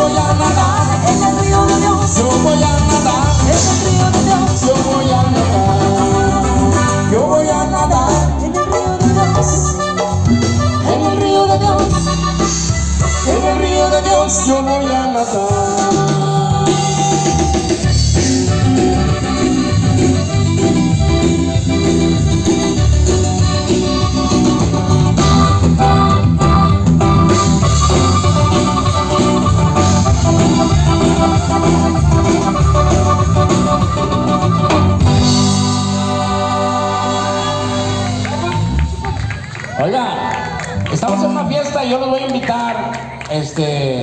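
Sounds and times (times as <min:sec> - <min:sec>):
button accordion: 0:00.0 - 0:38.4
repeating bass line: 0:00.0 - 0:39.3
guitars: 0:00.0 - 0:39.5
drums: 0:00.0 - 0:43.3
person singing with pitch glides: 0:10.8 - 0:18.1, 0:35.2 - 0:38.5.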